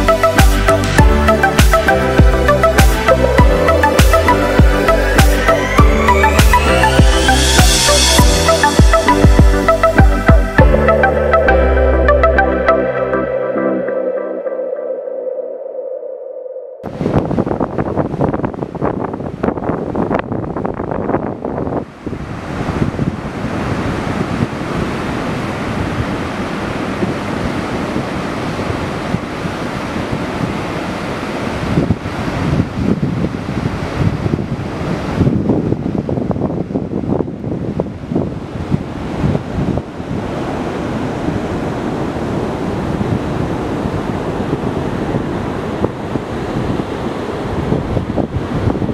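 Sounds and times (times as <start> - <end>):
wind on microphone: 16.8 - 48.9
surf breaking on beach: 16.9 - 20.6, 21.6 - 48.9.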